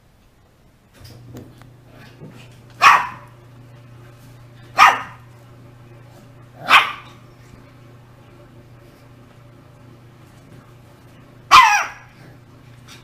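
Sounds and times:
puppy barking: 0:02.8 - 0:03.4, 0:04.7 - 0:05.3, 0:06.6 - 0:07.2, 0:11.5 - 0:12.2.

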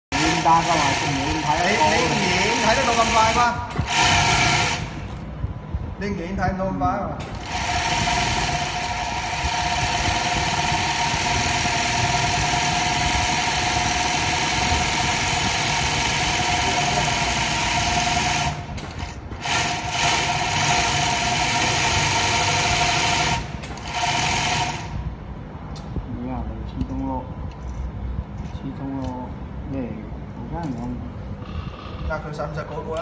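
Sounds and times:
sewing machine running fast: 0:00.1 - 0:05.0, 0:07.4 - 0:25.0.

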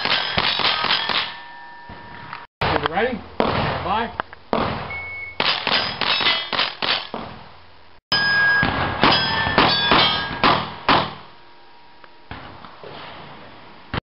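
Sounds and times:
rifle shots: 0:00.0 - 0:01.3, 0:05.4 - 0:07.2
steel target ringing: 0:00.0 - 0:02.4, 0:04.9 - 0:06.6, 0:08.1 - 0:12.3.

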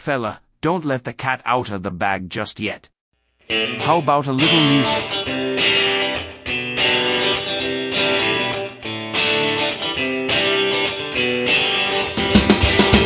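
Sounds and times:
guitar riff: 0:03.4 - 0:13.0.

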